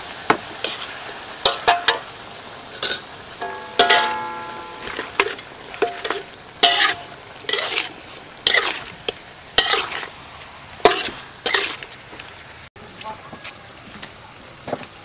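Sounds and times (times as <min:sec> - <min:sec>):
frying sizzle: 0:00.0 - 0:15.0
metal spatula scraping wok: 0:00.6 - 0:02.0, 0:02.8 - 0:12.1
wok ringing: 0:01.5 - 0:02.1, 0:02.7 - 0:10.1.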